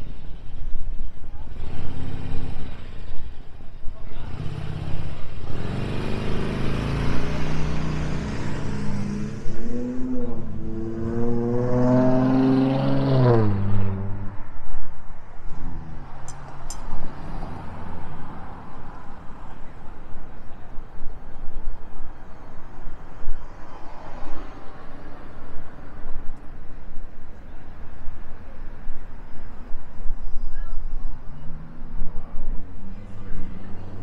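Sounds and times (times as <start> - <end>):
street noise: 0.0 - 34.0
engine accelerating: 4.1 - 14.4.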